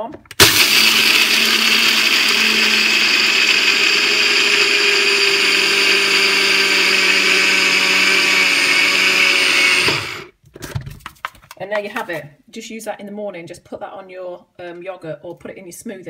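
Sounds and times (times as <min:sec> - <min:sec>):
blender motor grinding seeds: 0:00.4 - 0:10.3.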